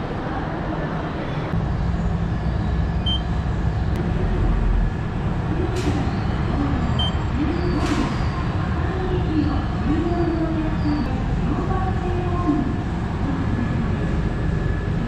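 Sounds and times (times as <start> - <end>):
station concourse rumble: 0.0 - 15.0
high beeps: 3.0 - 3.3, 7.0 - 7.2.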